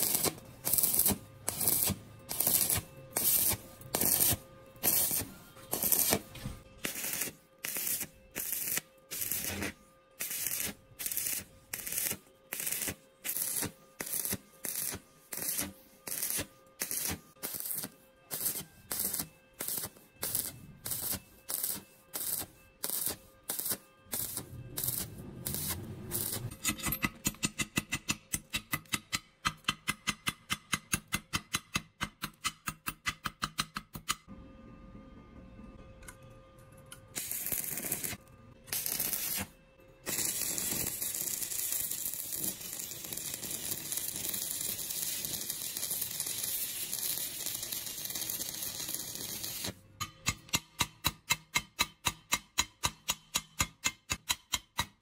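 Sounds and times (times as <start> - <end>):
welding arc crackling: 0.0 - 26.5, 37.2 - 39.5, 40.1 - 49.8
chipping hammer tapping on metal: 26.6 - 34.2, 50.0 - 55.0.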